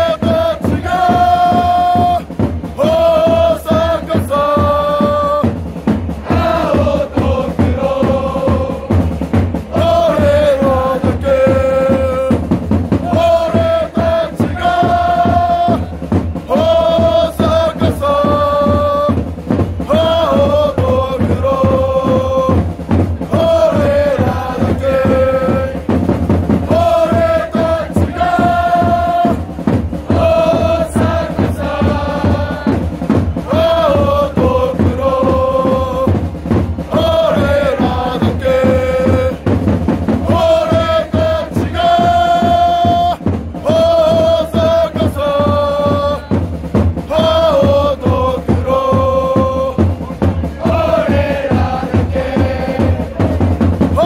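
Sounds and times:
crowd chanting: 0.0 - 19.2, 19.8 - 26.0, 26.6 - 36.2, 36.8 - 46.4, 47.0 - 54.0
fast drum beat: 0.0 - 54.0.

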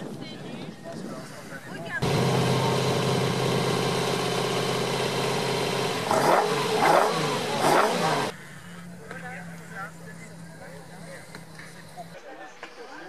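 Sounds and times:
car engine idling and revving: 2.0 - 12.2.

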